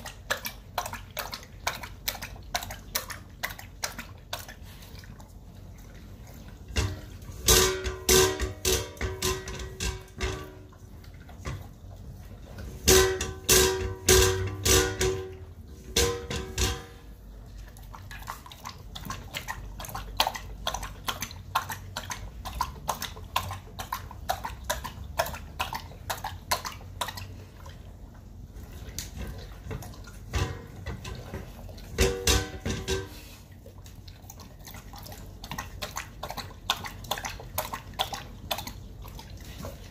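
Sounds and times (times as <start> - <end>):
dog lapping water: 0.0 - 39.9
metal bowl ringing: 6.8 - 10.7, 12.8 - 17.1, 32.0 - 33.2.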